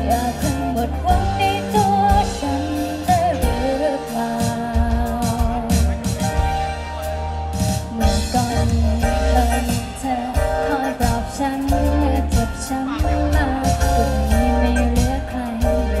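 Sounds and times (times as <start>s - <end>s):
live band playing pop song: 0.0s - 16.0s
person singing: 7.9s - 16.0s.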